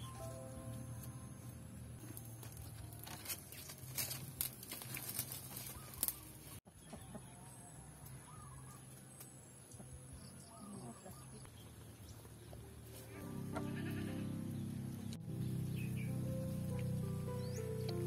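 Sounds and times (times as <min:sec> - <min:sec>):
wood fire crackling: 0:02.0 - 0:06.6
chickens clucking: 0:05.7 - 0:07.5.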